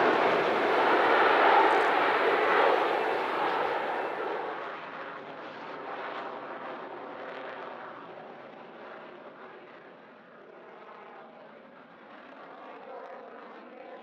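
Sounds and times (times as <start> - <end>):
jet engine rushing: 0.0 - 4.7.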